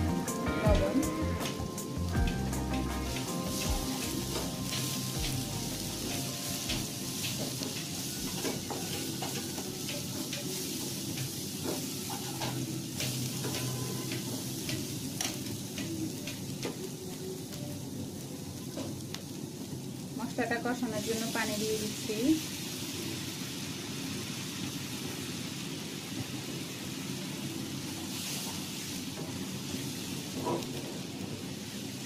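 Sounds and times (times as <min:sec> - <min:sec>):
onions sizzling in oil: 0:00.0 - 0:32.0
spatula scraping a pan: 0:11.2 - 0:15.4.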